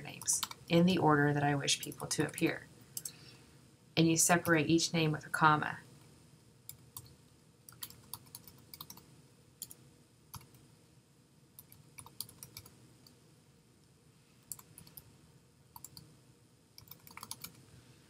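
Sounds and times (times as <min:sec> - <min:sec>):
keyboard typing: 0:00.1 - 0:00.6, 0:06.7 - 0:10.6, 0:11.6 - 0:13.2, 0:14.4 - 0:15.1, 0:15.7 - 0:16.1, 0:16.8 - 0:17.6.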